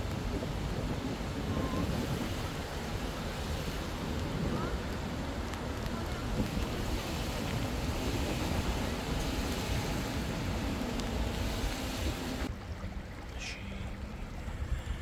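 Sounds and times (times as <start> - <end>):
steady rushing outdoor noise: 0.0 - 15.0.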